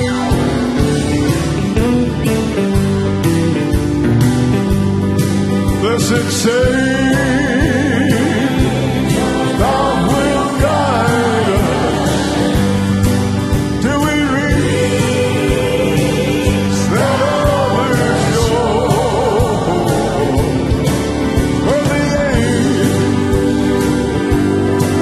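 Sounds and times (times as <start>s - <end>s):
live gospel band playing: 0.0s - 25.0s
voices singing: 5.8s - 25.0s.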